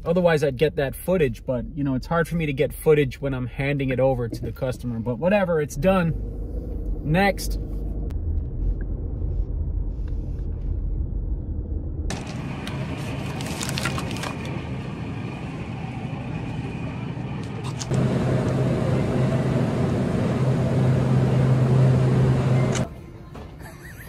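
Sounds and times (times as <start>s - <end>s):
steady low hum: 0.0s - 23.2s
refrigeration fan and compressor hiss: 12.1s - 24.0s.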